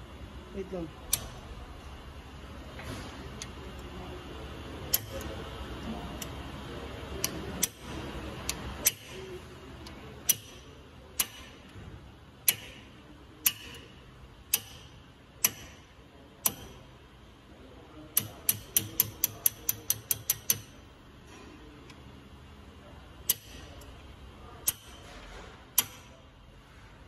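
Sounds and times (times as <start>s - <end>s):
hand ratchet clicking: 10.3s - 10.6s, 14.5s - 15.8s, 18.2s - 20.8s, 23.3s - 23.7s, 24.6s - 25.0s.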